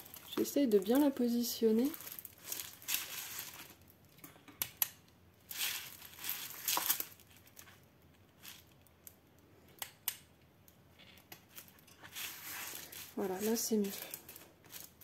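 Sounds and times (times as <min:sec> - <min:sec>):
plastic film crinkling: 0:00.0 - 0:04.2, 0:05.4 - 0:09.2, 0:11.1 - 0:15.0.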